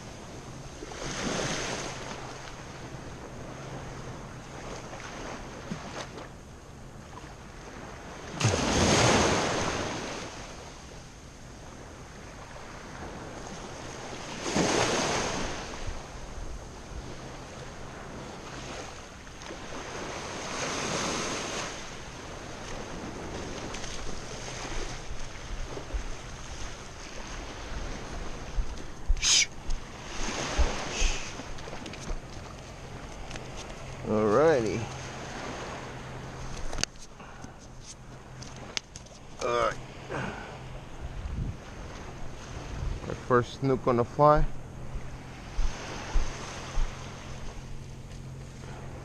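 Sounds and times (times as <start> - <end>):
small waves washing ashore: 0.0 - 49.0
sharp splashes in shallow water: 8.2 - 10.5
wind on microphone: 22.6 - 32.3, 40.2 - 43.3, 44.3 - 47.9.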